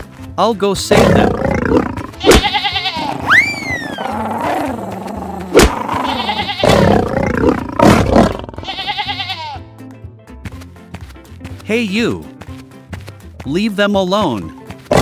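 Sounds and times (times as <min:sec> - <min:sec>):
background music: 0:00.0 - 0:15.0
lion roaring: 0:00.9 - 0:02.2, 0:03.0 - 0:08.6
sheep and goat bleating: 0:02.0 - 0:04.8, 0:05.8 - 0:07.6, 0:08.2 - 0:09.7.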